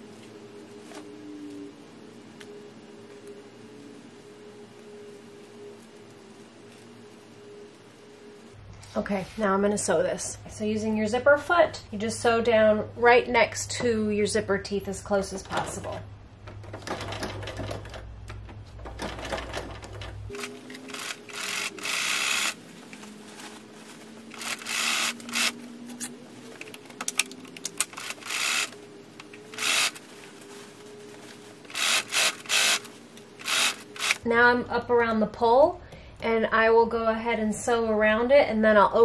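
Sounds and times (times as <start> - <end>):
sewing machine stitching: 18.8 - 22.6
soft rustling: 22.6 - 24.4, 30.0 - 31.7.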